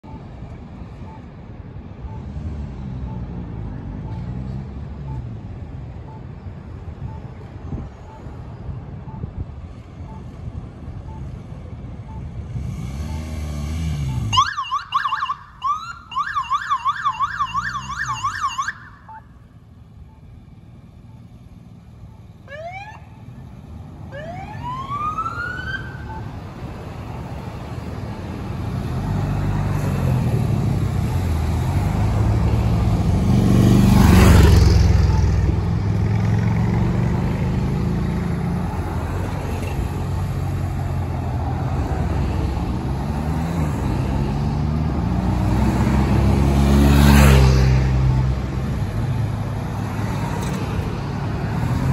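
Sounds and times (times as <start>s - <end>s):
vehicles passing close: 0.0s - 51.9s
police siren whoops and yelp: 14.3s - 19.2s, 24.1s - 26.2s.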